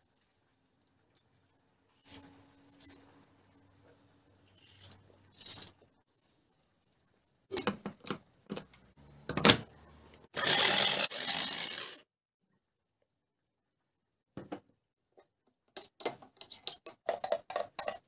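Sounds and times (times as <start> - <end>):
electric chopper running: 10.4 - 12.0.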